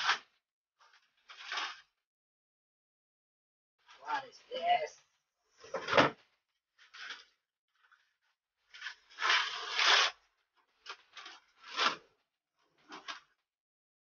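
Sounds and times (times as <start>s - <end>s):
wrapping paper ripping: 8.8s - 10.2s, 10.8s - 12.0s.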